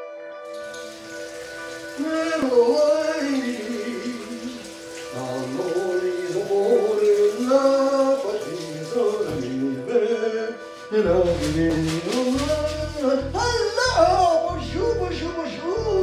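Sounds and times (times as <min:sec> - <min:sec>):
person singing: 0:01.9 - 0:16.0
low bass beat: 0:11.0 - 0:15.3.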